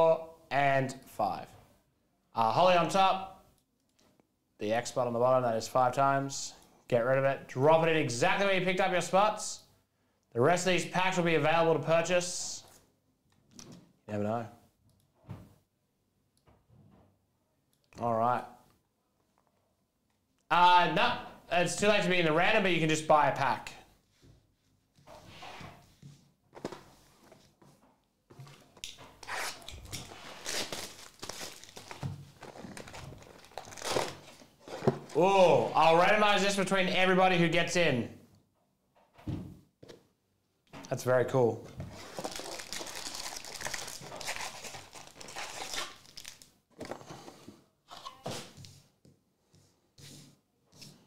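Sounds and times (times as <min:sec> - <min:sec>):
foil packs rustling and crinkling: 0:30.0 - 0:35.2, 0:41.9 - 0:46.8.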